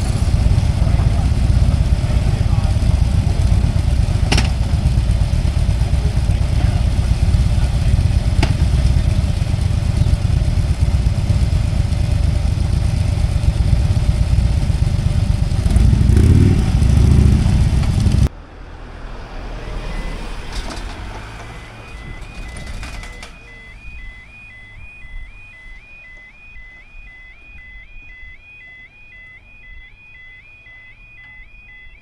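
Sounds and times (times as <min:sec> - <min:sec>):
motorcycle engines idling and revving: 0:00.0 - 0:32.0
quiet traffic noise: 0:00.0 - 0:32.0.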